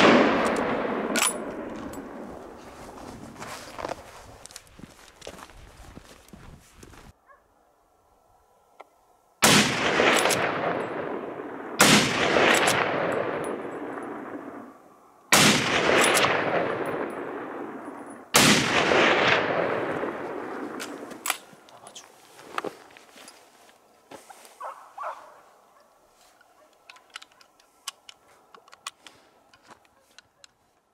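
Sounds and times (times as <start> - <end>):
rifle shots: 0.0 - 2.3, 9.4 - 14.7, 15.3 - 21.2
echo rolling off hillsides: 0.0 - 30.9.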